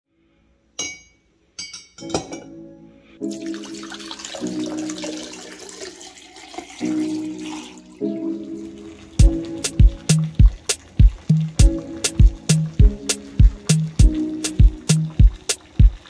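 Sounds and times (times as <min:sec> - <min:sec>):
metal clinking on glass mug: 0:00.8 - 0:02.5
background music with held notes: 0:02.0 - 0:16.0
water pouring into mug: 0:03.2 - 0:16.0.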